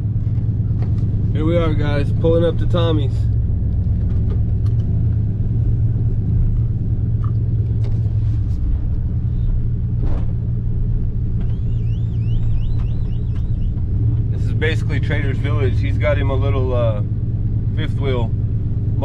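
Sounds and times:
truck engine and road rumble: 0:00.0 - 0:19.0
bird chirping: 0:11.4 - 0:13.8.

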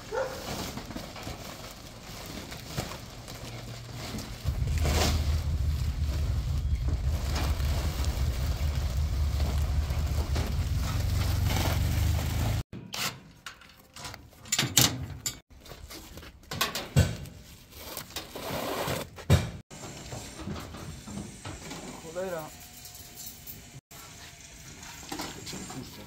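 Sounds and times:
plastic tarp pulled off: 0:00.3 - 0:12.6
wind rumbling on microphone: 0:04.3 - 0:12.0.

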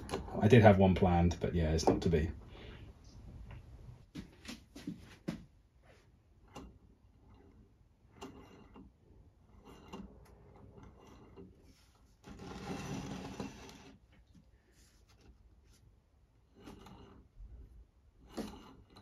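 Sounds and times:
metal base scraping on wood: 0:06.4 - 0:14.0, 0:16.4 - 0:19.0.

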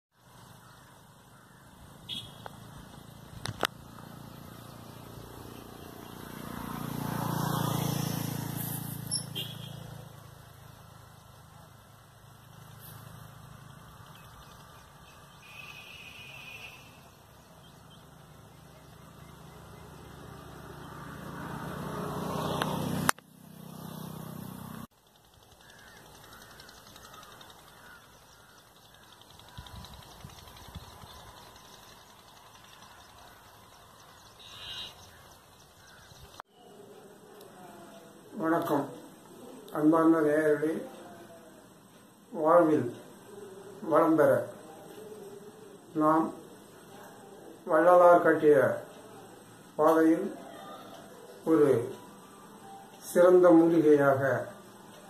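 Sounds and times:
sharp clicks: 0:25.0 - 0:33.7.

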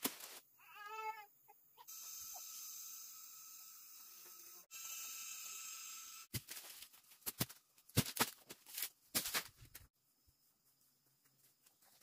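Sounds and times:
dry plants crunching and rustling: 0:06.4 - 0:09.9.

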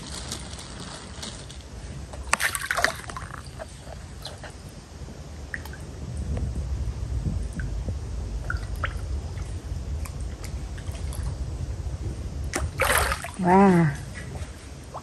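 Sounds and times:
pellets splashing onto water: 0:02.2 - 0:03.5, 0:12.5 - 0:13.5
water sloshing: 0:02.2 - 0:04.6, 0:08.4 - 0:15.0.

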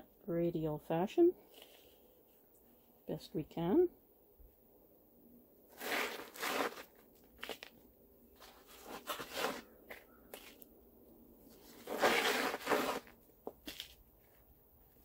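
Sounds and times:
soil rustling and scraping: 0:05.7 - 0:10.7, 0:11.4 - 0:14.4.

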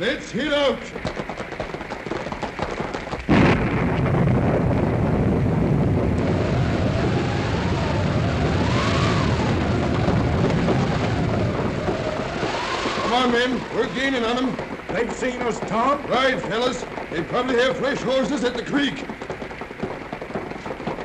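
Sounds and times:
rapid clatter of knocks: 0:00.8 - 0:03.4, 0:08.9 - 0:21.0
steady rumbling rush: 0:00.9 - 0:21.0
thunder crash: 0:03.3 - 0:14.8
wind machine howling: 0:04.4 - 0:21.0.

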